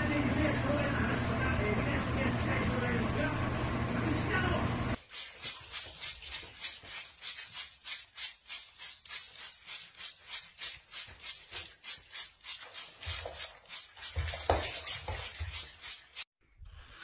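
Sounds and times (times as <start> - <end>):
owl wings splashing water: 5.0 - 16.3.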